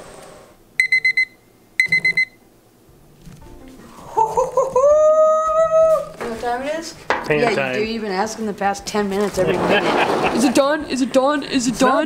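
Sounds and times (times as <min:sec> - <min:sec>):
phone alarm beeping: 0:00.8 - 0:02.4.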